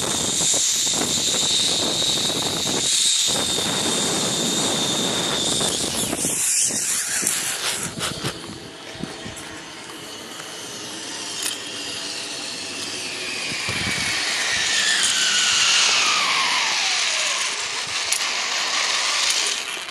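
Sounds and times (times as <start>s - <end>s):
zip-line pulleys whirring on cable: 0.0s - 19.9s.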